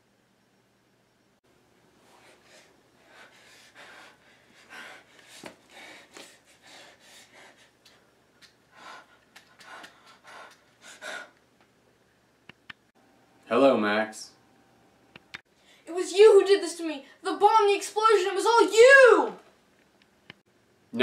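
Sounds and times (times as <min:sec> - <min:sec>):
boy gasping for breath: 0:02.2 - 0:07.7, 0:08.7 - 0:11.4.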